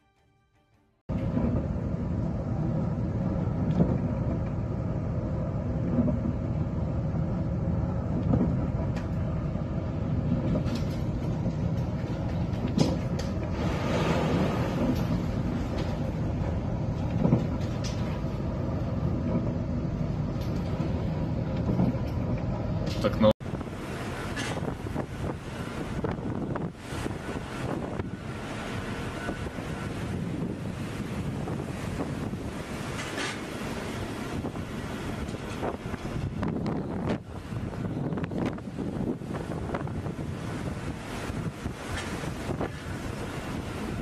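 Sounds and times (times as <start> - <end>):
wave breaking over bow: 1.1 - 22.6
ship engine rumbling: 1.1 - 44.0.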